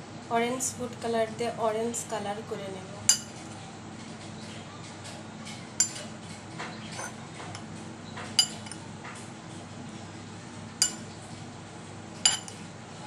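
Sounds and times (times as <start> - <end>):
steady low hum: 0.0 - 13.0
spoon clinking on bowl: 5.8 - 6.0, 8.4 - 8.8, 10.8 - 11.0, 12.3 - 12.6
metal spoon stirring in bowl: 8.4 - 8.8, 10.8 - 11.0, 12.3 - 12.6.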